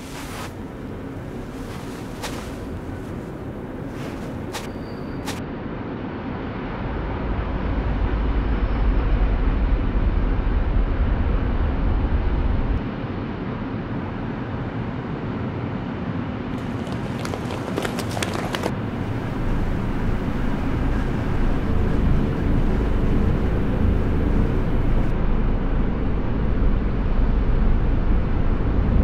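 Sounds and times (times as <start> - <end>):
deep rumble: 18.7 - 29.0
steady rushing rumbling noise: 18.7 - 29.0.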